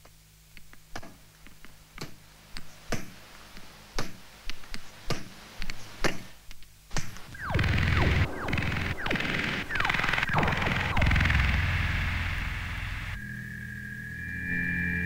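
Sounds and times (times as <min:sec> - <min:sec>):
electronic clicks and ticks: 0:07.0 - 0:13.2.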